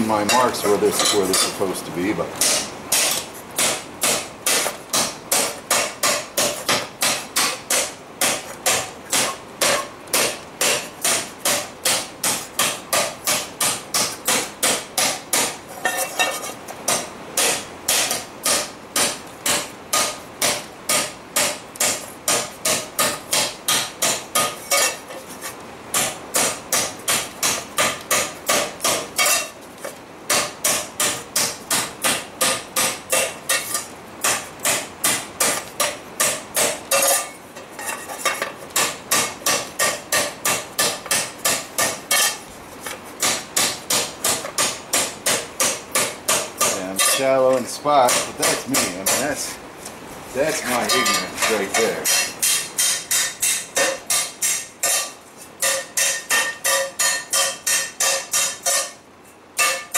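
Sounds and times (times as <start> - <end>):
hammer striking metal: 2.4 - 16.0, 16.9 - 25.0, 30.3 - 37.4, 38.8 - 42.4, 43.2 - 49.4, 50.7 - 59.0, 59.6 - 59.9.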